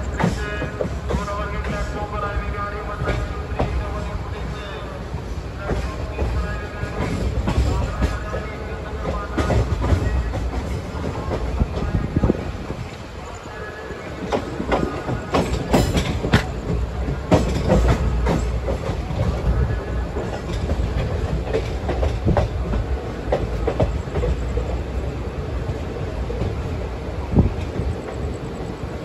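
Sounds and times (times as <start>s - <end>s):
train wheels clacking over rail joints: 0.0s - 2.0s, 5.6s - 12.0s, 14.2s - 24.8s
low train rumble: 0.0s - 29.0s.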